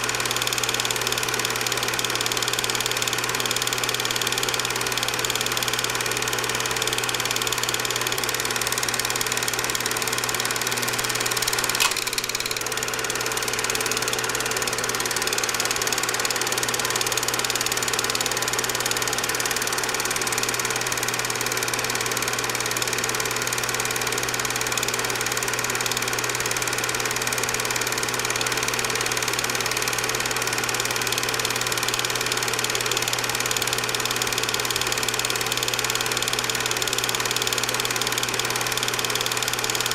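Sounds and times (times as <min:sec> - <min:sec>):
film projector whirring: 0:00.0 - 0:39.9
sharp click: 0:11.3 - 0:13.0.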